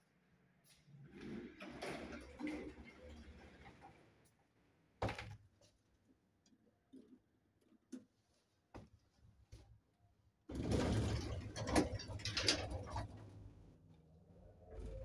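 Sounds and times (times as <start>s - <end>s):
elevator mechanism rattling: 10.5s - 13.4s.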